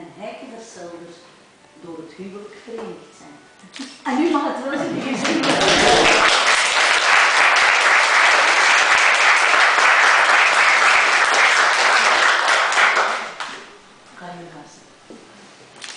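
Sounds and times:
guests applauding: 5.0 - 13.8.

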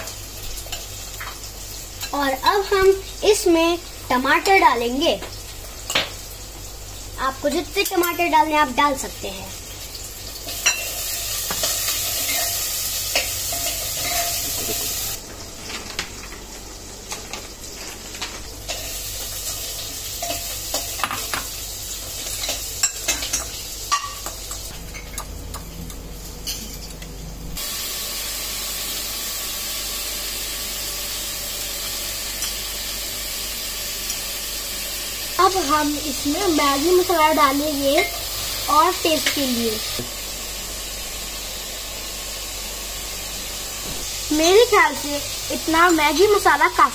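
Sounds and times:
steady hiss: 0.0 - 24.7, 27.6 - 46.9.

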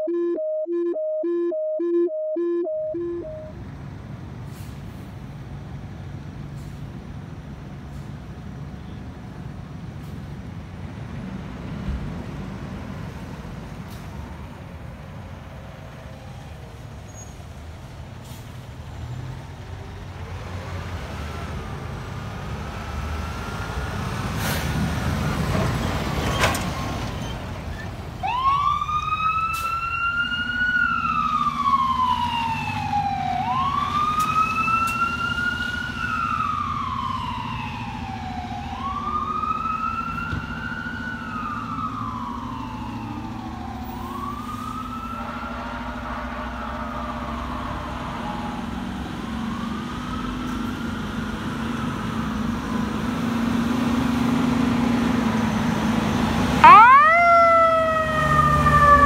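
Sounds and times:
electronic siren wailing: 0.0 - 3.5, 56.6 - 59.0.

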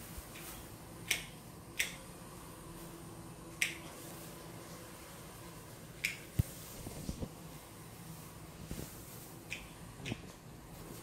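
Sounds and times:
shears snipping plant stems: 0.3 - 2.1.

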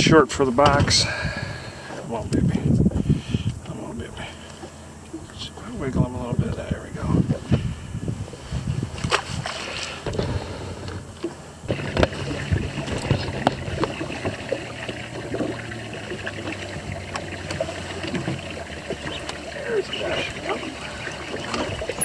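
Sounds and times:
steady low hum: 0.0 - 22.0
water lapping against boat: 0.5 - 22.0
gear knocking against boat: 10.0 - 20.0.

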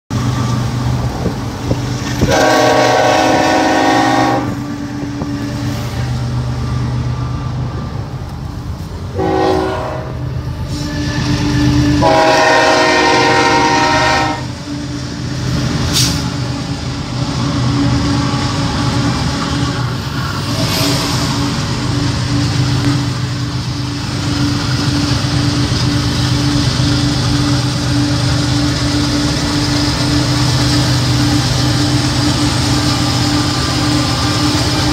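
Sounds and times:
locomotive air horn blasts: 2.2 - 6.2, 9.1 - 14.6.

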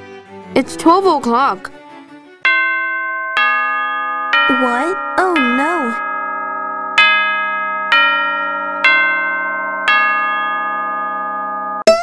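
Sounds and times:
clock bell striking: 2.4 - 11.9.

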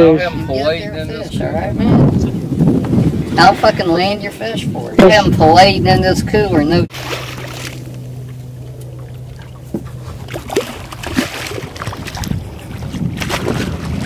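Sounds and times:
steady low hum: 0.0 - 14.0
fish splashing at surface: 6.9 - 14.0.

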